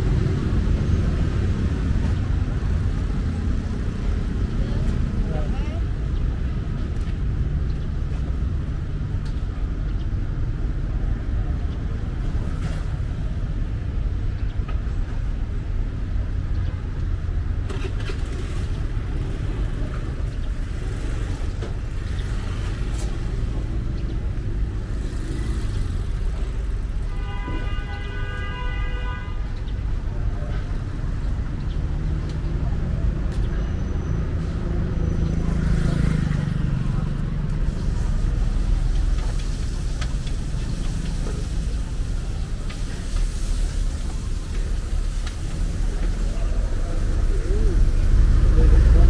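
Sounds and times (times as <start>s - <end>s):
traffic rumble: 0.0s - 49.0s
vehicle horn: 27.1s - 29.5s.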